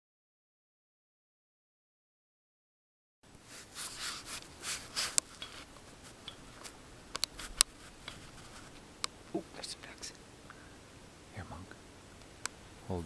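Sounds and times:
clothing and grass rustling: 3.3 - 13.0.

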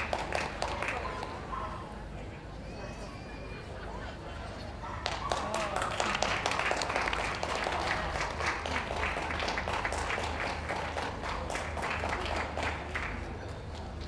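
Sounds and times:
audience applauding: 0.0 - 1.4, 5.0 - 13.3.

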